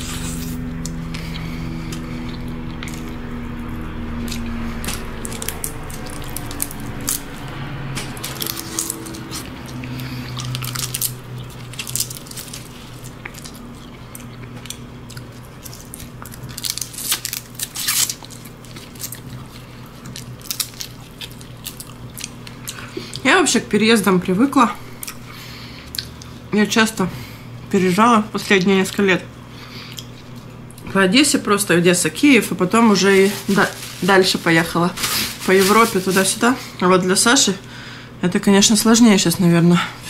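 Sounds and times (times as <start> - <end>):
wet chewing: 0.0 - 23.2, 25.0 - 26.5, 29.6 - 30.9.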